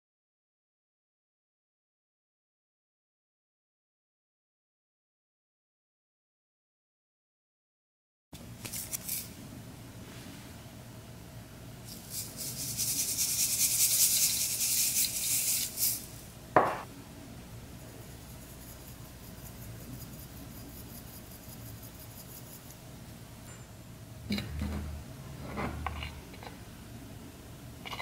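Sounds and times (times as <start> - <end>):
glitter rattling from shaker jar: 11.9 - 16.2
sharp knock: 16.6 - 16.9.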